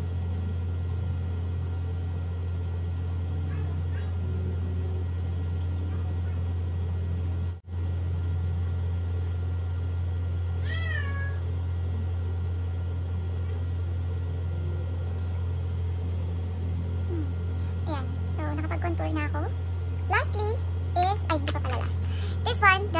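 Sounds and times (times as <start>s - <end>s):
steady low hum: 0.0s - 22.9s
cat meowing: 10.6s - 11.4s.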